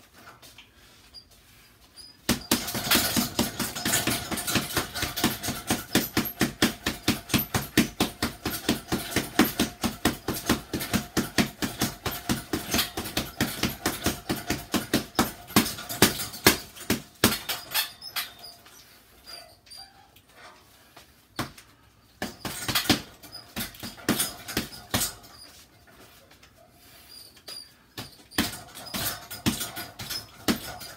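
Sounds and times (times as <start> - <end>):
boxing gloves punching heavy bag: 2.2 - 18.6, 22.2 - 25.6, 27.9 - 30.9.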